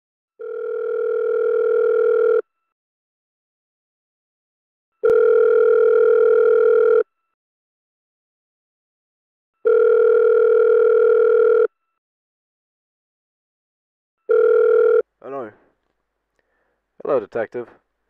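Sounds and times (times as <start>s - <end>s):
telephone ringing tone: 0.4s - 2.6s, 5.0s - 7.2s, 9.6s - 11.8s, 14.2s - 15.1s.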